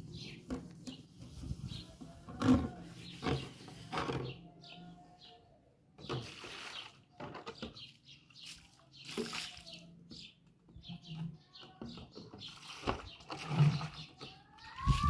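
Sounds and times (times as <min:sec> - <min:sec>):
water splashing in plastic basins: 0:06.0 - 0:10.1, 0:12.0 - 0:15.0.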